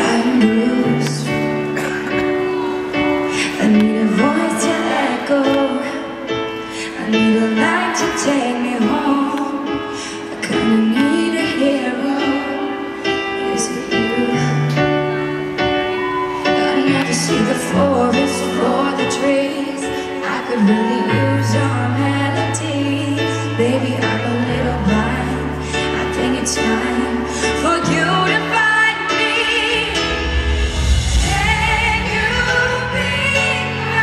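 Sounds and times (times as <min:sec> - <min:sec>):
woman singing pop ballad: 0:00.0 - 0:34.0.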